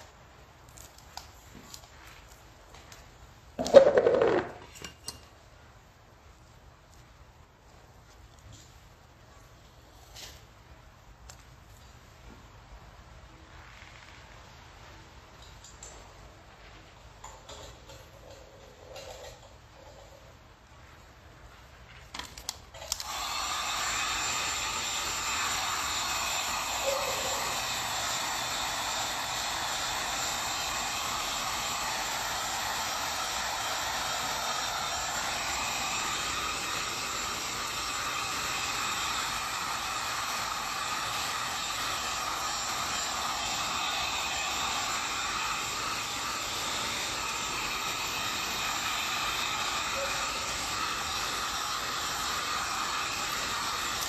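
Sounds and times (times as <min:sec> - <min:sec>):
heat gun fan whoosh: 0:22.4 - 0:54.0.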